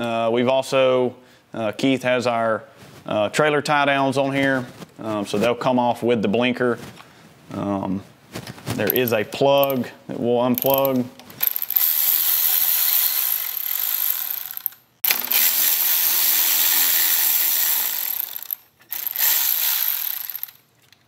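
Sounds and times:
cordless electric ratchet running: 0:10.6 - 0:20.6.

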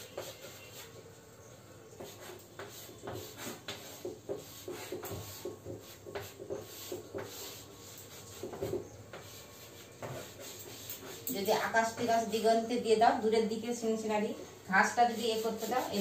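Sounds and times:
chalk scraping on blackboard: 0:00.0 - 0:01.0, 0:02.0 - 0:12.0, 0:14.9 - 0:16.0.

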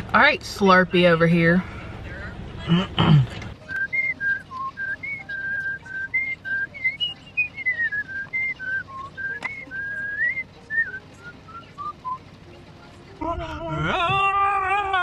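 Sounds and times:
person whistling a tune: 0:03.7 - 0:12.2.

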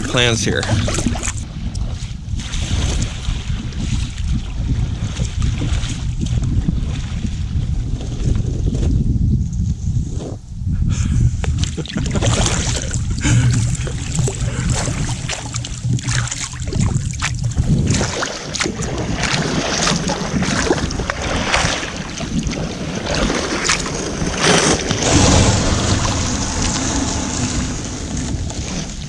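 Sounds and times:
water washing along hull: 0:00.0 - 0:09.0, 0:11.0 - 0:29.0
wind buffeting microphone: 0:00.0 - 0:29.0
kayak paddle splashes: 0:00.6 - 0:07.7, 0:11.5 - 0:26.2.

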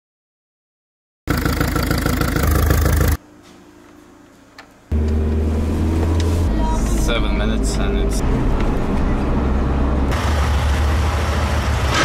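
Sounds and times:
diesel engine running: 0:01.3 - 0:03.2, 0:04.9 - 0:12.0.

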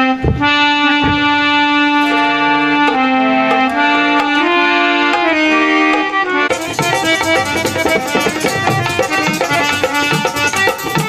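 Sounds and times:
harmonium playing chords: 0:00.0 - 0:11.0
hand drum strokes: 0:02.0 - 0:11.0.

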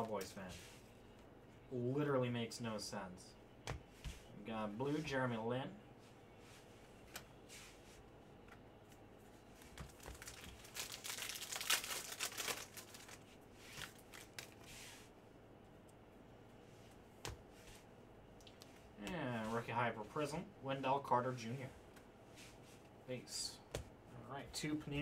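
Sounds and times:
foil pack tearing and crinkling: 0:09.9 - 0:13.2.

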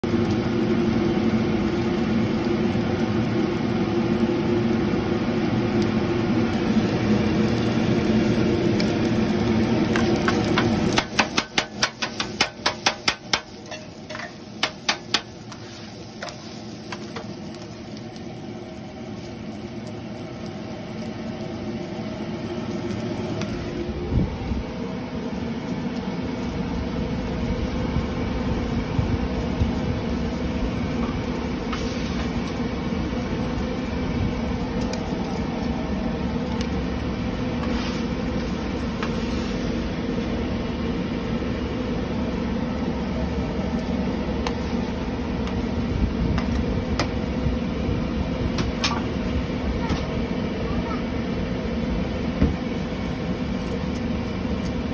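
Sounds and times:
fan hum: 0:00.0 - 0:54.9
spatula clacking on griddle: 0:09.9 - 0:17.4.

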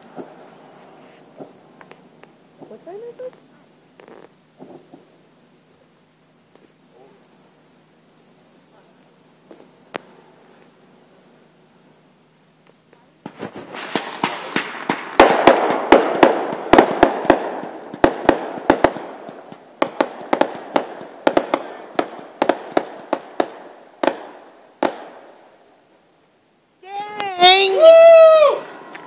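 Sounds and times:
fireworks bangs and pops: 0:00.0 - 0:05.2, 0:08.9 - 0:10.8, 0:12.6 - 0:25.6
fireworks crackling: 0:00.0 - 0:29.0.

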